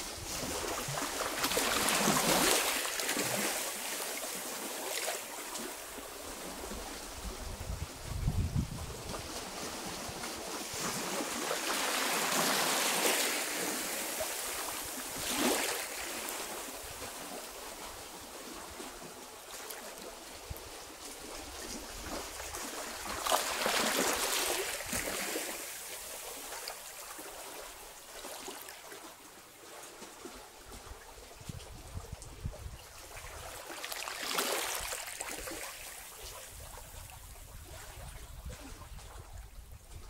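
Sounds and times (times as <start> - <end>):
waves washing over rocks: 0.0 - 7.3, 9.4 - 18.8, 21.5 - 27.8.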